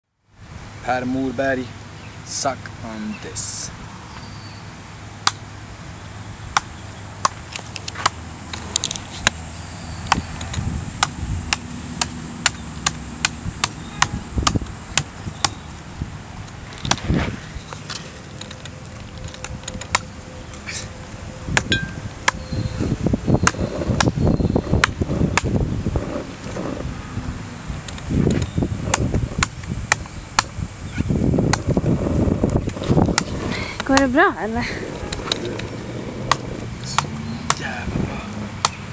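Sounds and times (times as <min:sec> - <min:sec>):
knife chopping coconut husk: 0:08.0 - 0:08.2, 0:36.3 - 0:37.7, 0:38.6 - 0:38.8.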